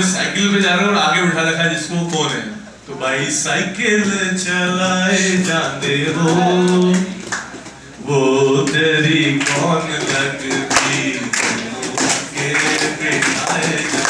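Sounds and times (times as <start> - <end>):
man singing unaccompanied: 0.0 - 7.3, 8.0 - 14.0
hand claps: 6.2 - 7.8, 8.6 - 14.0.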